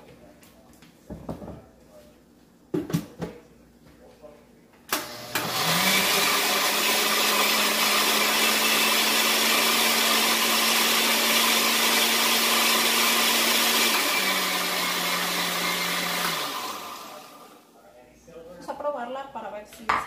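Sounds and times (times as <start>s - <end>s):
blender whirring: 4.9s - 17.7s.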